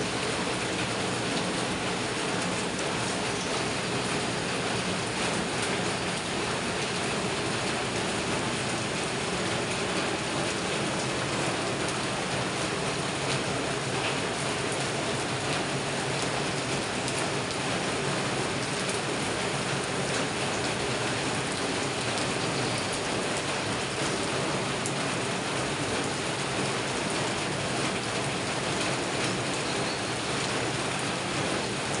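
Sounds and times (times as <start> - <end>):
rain falling on foliage: 0.0 - 32.0.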